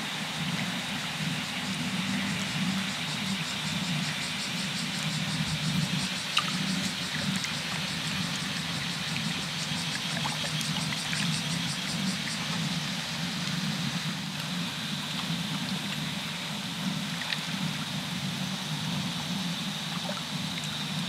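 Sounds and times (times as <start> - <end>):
steady low hum: 0.0 - 21.0
insect chirring: 0.3 - 13.8.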